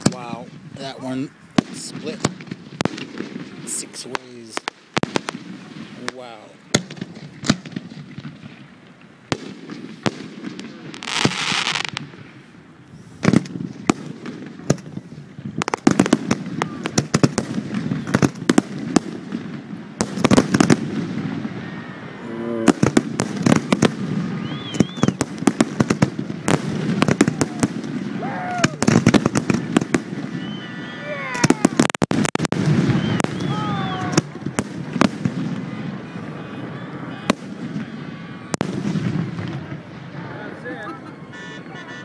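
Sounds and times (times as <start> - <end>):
firework hiss: 9.4 - 21.6
firework shells bursting: 22.7 - 30.7.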